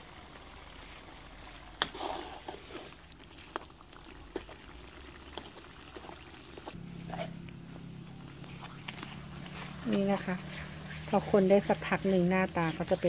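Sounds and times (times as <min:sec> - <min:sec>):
metal spatula scraping a wok: 0:01.8 - 0:03.0.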